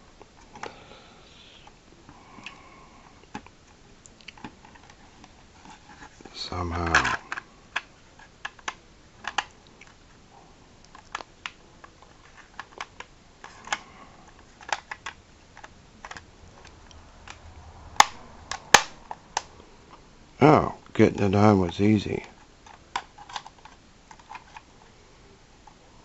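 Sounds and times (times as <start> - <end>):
plastic toy parts clicking: 6.8 - 10.0, 14.6 - 16.7, 22.6 - 24.7.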